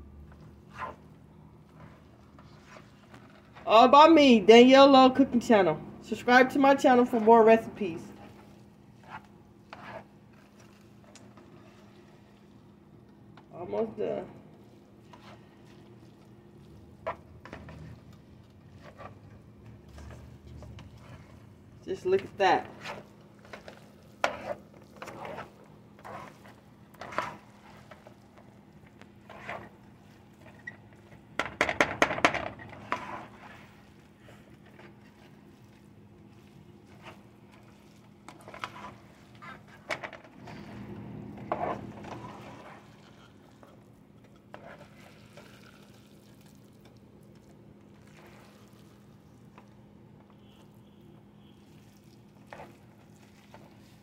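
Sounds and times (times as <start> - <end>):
spatula scraping a frying pan: 0.6 - 3.6, 8.0 - 12.4, 14.9 - 16.3, 16.9 - 21.6, 22.6 - 28.3, 29.2 - 31.3, 32.5 - 45.6.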